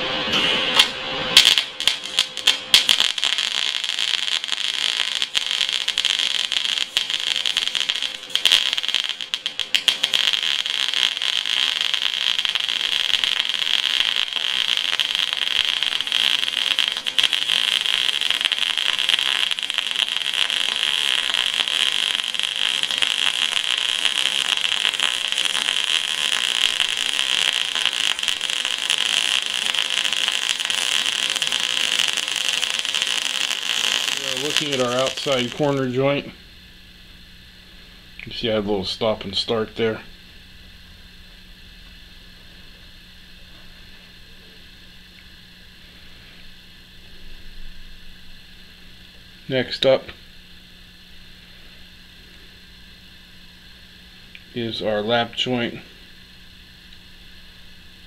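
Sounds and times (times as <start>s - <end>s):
welding arc crackling: 0.0s - 36.5s, 38.2s - 40.4s.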